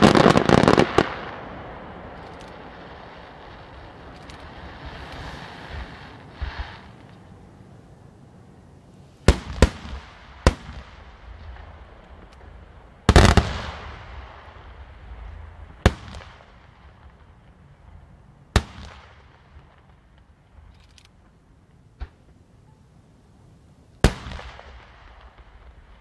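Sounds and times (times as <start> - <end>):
firework shells bursting: 0.0 - 7.4.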